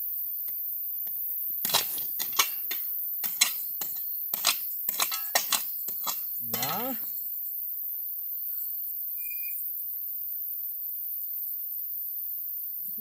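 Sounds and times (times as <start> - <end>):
crickets chirping: 0.0 - 13.0
spade scraping stony gravel: 1.6 - 7.2.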